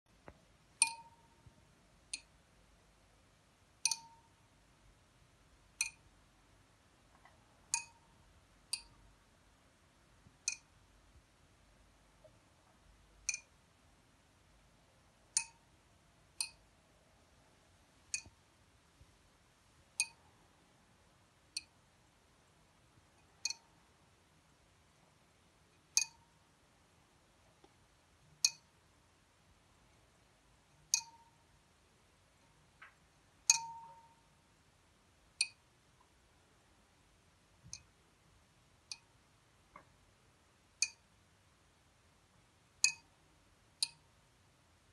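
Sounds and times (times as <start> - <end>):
light metallic clinks of clock: 0.8 - 1.5, 3.8 - 4.4, 7.7 - 9.0, 16.4 - 16.6, 20.0 - 20.2, 23.2 - 23.7, 25.7 - 26.3, 28.4 - 28.7, 30.8 - 31.5, 33.4 - 34.4, 40.8 - 41.1, 42.8 - 43.2.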